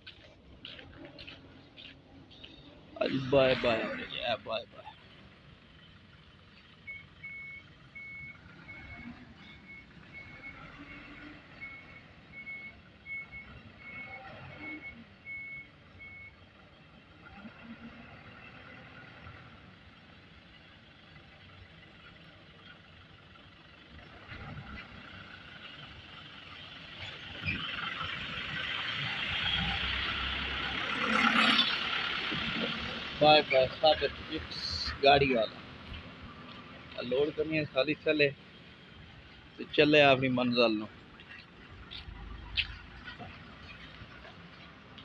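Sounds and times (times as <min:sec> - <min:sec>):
reversing alarm beeping: 0:06.8 - 0:16.4.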